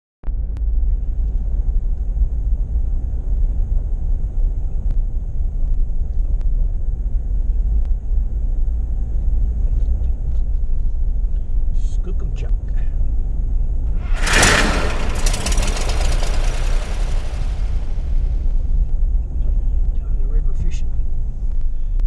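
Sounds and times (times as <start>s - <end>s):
car driving on paved road: 13.9s - 18.5s.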